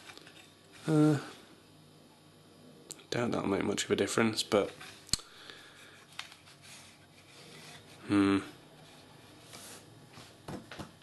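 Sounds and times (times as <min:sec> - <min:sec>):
plastic rubbing on countertop: 0:08.8 - 0:10.4.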